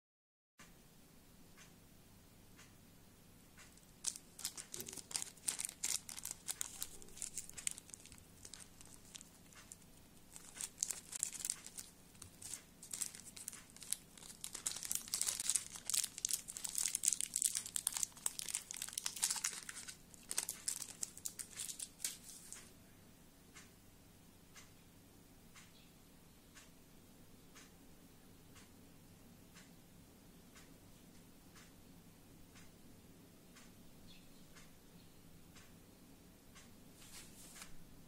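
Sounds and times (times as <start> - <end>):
plastic bag crinkling: 3.8 - 22.6.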